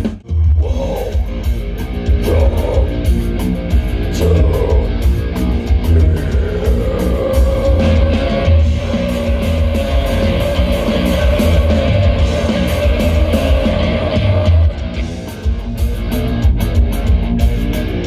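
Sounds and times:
metal band playing live: 0.0s - 18.0s
vocalist screaming: 0.6s - 1.4s, 2.2s - 3.1s, 5.8s - 9.6s.

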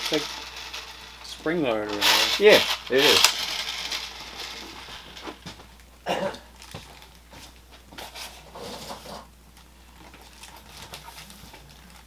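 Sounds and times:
plastic parts clattering: 0.0s - 5.4s.

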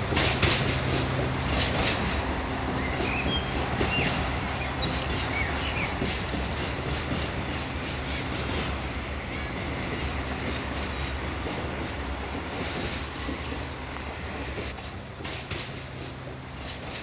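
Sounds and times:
diesel train engine humming: 0.0s - 17.0s.

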